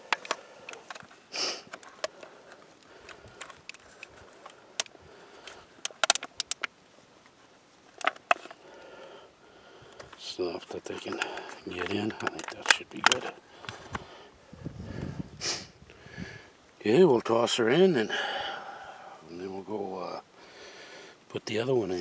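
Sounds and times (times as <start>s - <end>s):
breathy hiss: 0.0s - 5.9s, 8.3s - 12.6s, 13.3s - 16.7s, 17.9s - 21.3s
aluminium foil crinkling: 0.0s - 8.7s, 10.0s - 14.0s.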